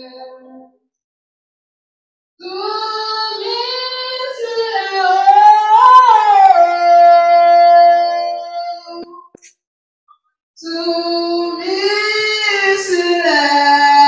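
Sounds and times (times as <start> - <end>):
high voice singing: 2.4 - 9.5.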